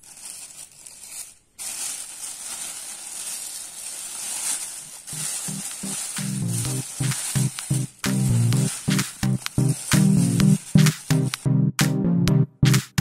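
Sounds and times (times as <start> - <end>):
plastic bag rustling and crinkling: 0.0 - 11.4
music with a beat: 5.2 - 13.0.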